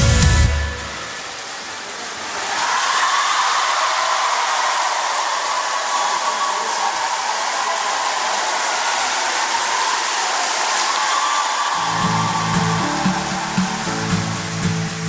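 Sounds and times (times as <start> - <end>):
music: 0.0 - 1.0, 11.8 - 15.0
loud rushing noise: 11.8 - 15.0.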